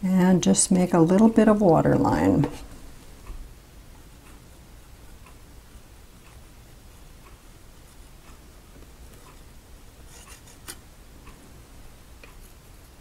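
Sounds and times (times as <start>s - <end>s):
faint regular ticking: 2.9s - 13.0s.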